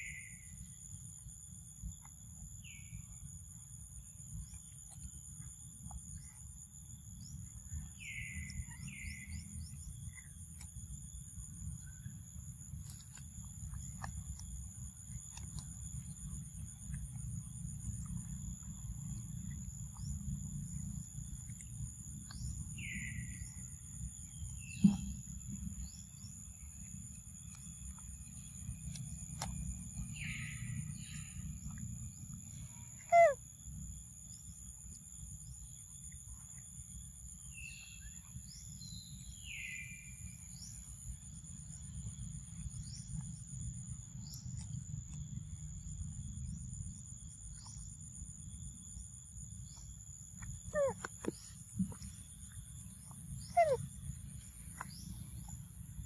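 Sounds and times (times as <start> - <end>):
bird chirps: 7.2 - 10.4, 18.1 - 33.4, 49.7 - 55.6.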